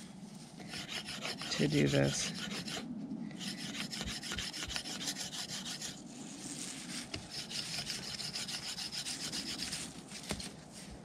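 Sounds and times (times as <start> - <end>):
knife scraping a wooden rod: 0.6 - 6.0, 6.8 - 10.0.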